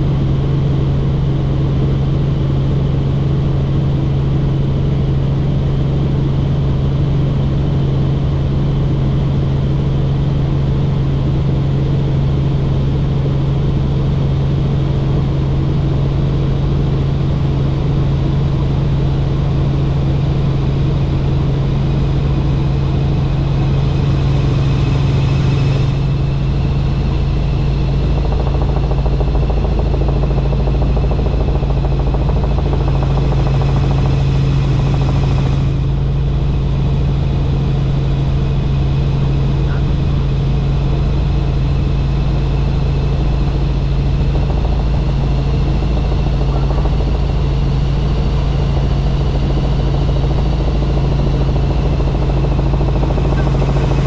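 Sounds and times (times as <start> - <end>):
helicopter engine and rotor drone: 0.0 - 54.0
high whine: 23.7 - 54.0.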